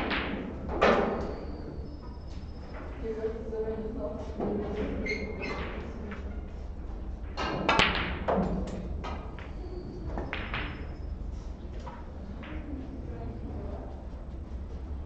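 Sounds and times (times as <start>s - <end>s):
cue clicking on ball: 7.2s - 11.1s.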